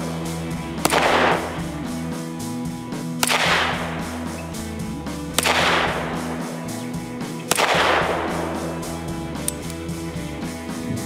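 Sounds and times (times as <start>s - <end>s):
plucked string music: 0.0s - 11.0s
pistol shots with echo: 0.4s - 2.3s, 3.1s - 4.4s, 5.3s - 9.8s.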